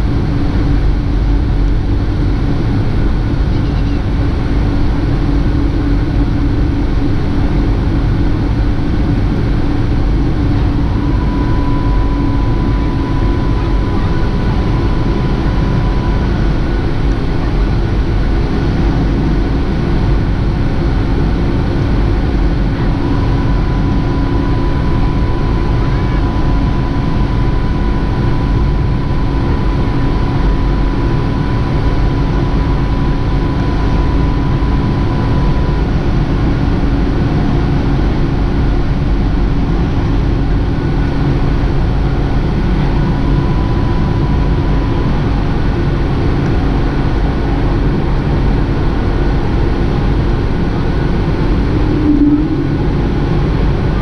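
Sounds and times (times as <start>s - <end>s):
jet engine rumble in cabin: 0.0s - 54.0s
faint thin whine: 9.5s - 19.2s, 49.9s - 54.0s.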